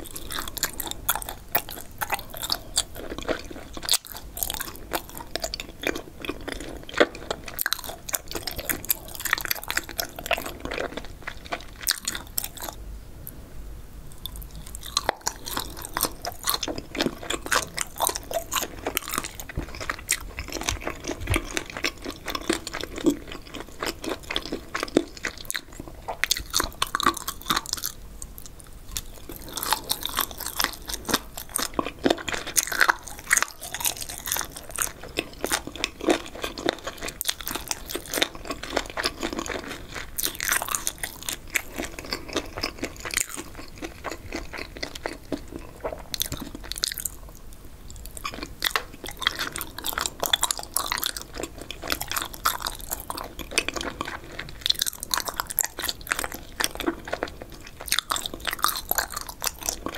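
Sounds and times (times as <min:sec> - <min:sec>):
crunchy chewing: 0:00.0 - 0:13.4, 0:14.1 - 0:59.9.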